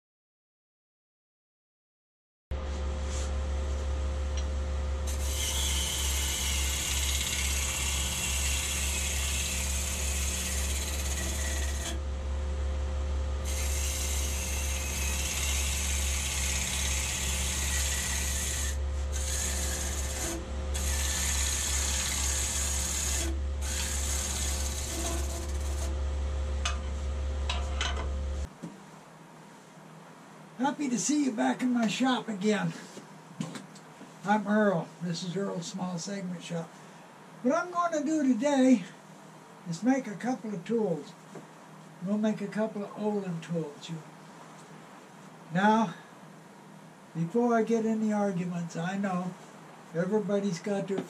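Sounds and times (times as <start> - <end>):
wood lathe humming: 4.8 - 26.0
turning tool cutting wood: 5.1 - 12.0, 13.4 - 26.0.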